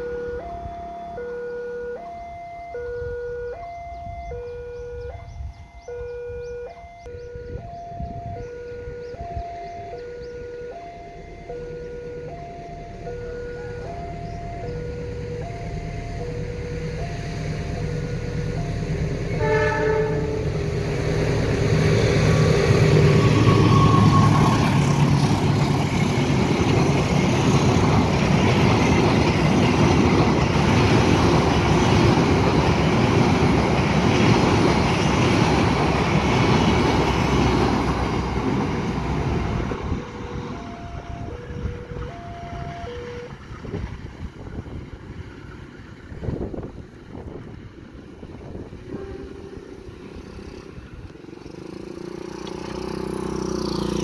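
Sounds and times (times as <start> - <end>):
two-tone crossing alarm chiming: 0.0 - 44.4
locomotive engine rumbling: 0.0 - 54.0
locomotive horn: 9.8 - 20.9, 22.3 - 25.3, 39.9 - 43.4, 48.9 - 50.6
train coaches rolling on rails: 9.8 - 54.0.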